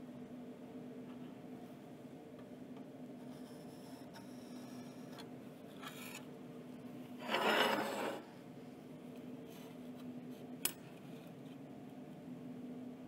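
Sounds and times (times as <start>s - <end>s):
soapstone scratching on steel: 7.2s - 8.2s.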